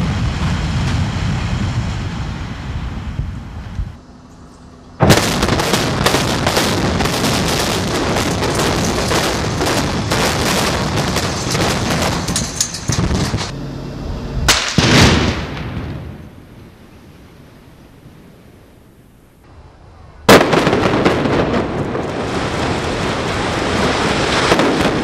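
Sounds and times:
demolition charges crackling: 5.0s - 13.5s, 20.3s - 25.0s
sharp blast: 5.0s - 13.6s, 14.4s - 16.3s.

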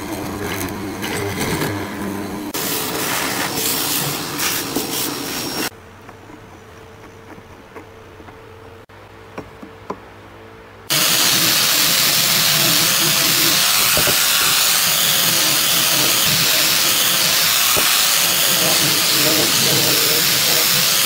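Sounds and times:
angle grinder sanding wood: 0.0s - 5.7s, 10.9s - 21.0s.

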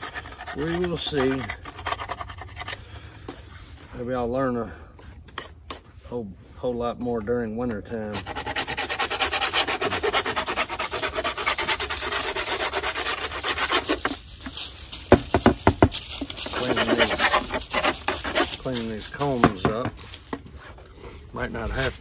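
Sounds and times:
scraping wooden frame: 8.1s - 20.9s.

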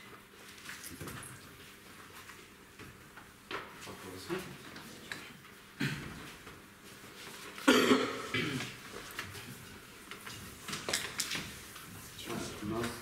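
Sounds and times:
person coughing: 5.8s - 6.2s, 7.6s - 8.8s.

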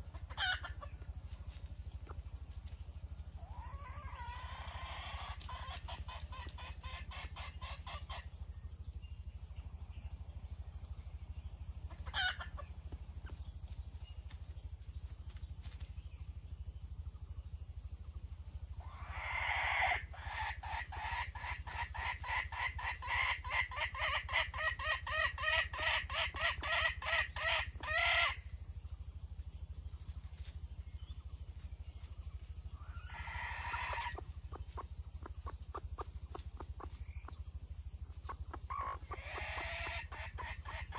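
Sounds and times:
hen cackling calls: 0.0s - 1.0s, 3.4s - 8.3s, 12.0s - 12.6s, 18.8s - 28.4s, 32.8s - 37.4s, 38.1s - 40.9s
hen clucking: 0.0s - 8.3s, 11.9s - 13.5s, 18.8s - 28.4s, 32.0s - 40.9s.

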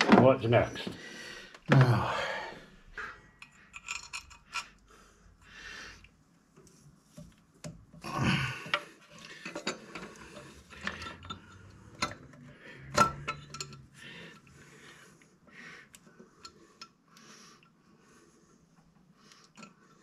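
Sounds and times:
metal tools clinking: 3.4s - 4.8s, 9.3s - 13.9s.

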